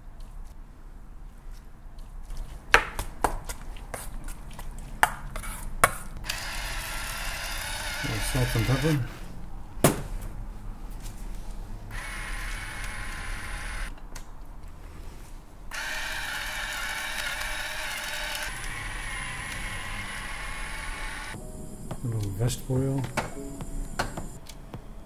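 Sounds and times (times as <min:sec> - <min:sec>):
pepper grinder grinding: 0:06.3 - 0:09.1, 0:15.7 - 0:20.8.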